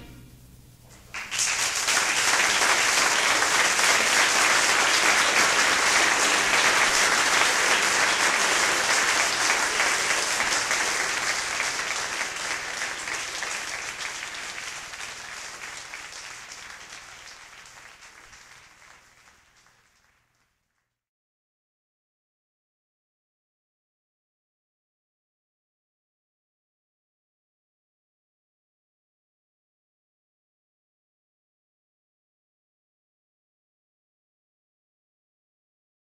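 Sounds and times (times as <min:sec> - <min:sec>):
audience applauding: 0:01.0 - 0:20.9.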